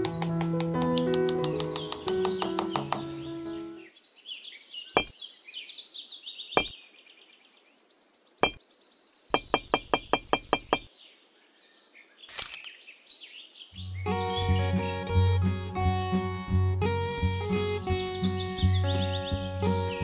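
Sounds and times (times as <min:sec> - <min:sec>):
small bricks tapping into place: 0:00.0 - 0:03.1
birds chirping: 0:00.0 - 0:20.0.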